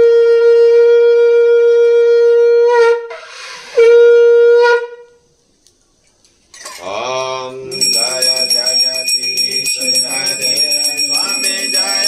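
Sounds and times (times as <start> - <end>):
conch shell blowing: 0.0 - 5.3.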